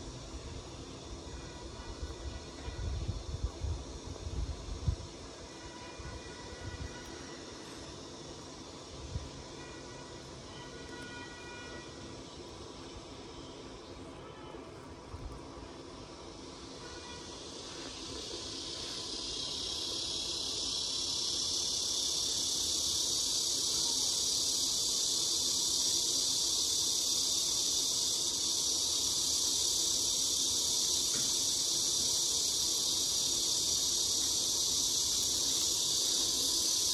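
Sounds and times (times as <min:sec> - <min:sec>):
high-pitched insect chorus: 0:00.0 - 0:36.9.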